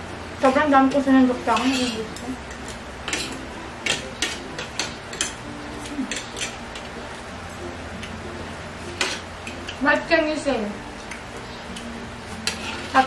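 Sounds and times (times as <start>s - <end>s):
cutlery scraping ceramic plates: 1.5s - 6.9s, 12.4s - 13.0s.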